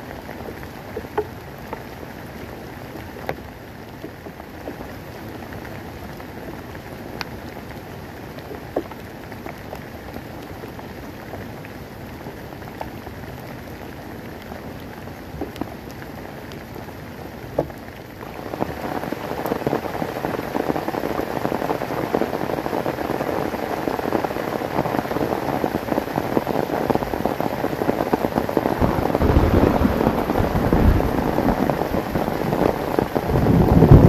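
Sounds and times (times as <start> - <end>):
heavy rain on plastic tarp: 0.0 - 34.0.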